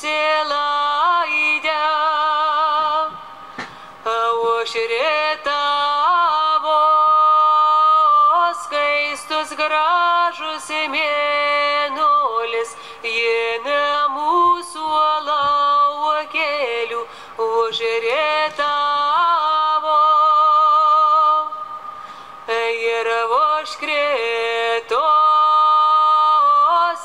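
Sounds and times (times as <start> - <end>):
woman singing slow melody: 0.0 - 27.0.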